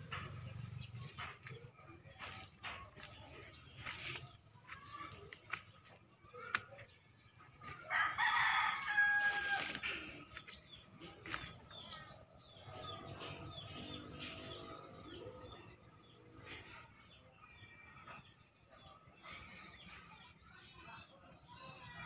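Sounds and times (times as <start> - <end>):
rooster crowing: 7.9 - 10.0.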